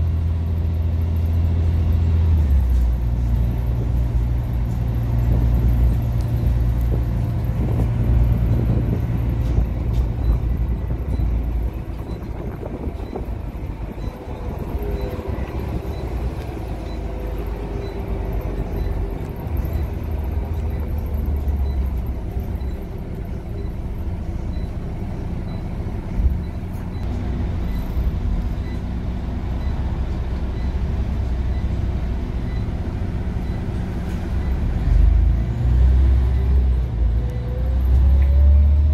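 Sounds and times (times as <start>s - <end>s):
bus diesel engine rumble: 0.0s - 38.9s.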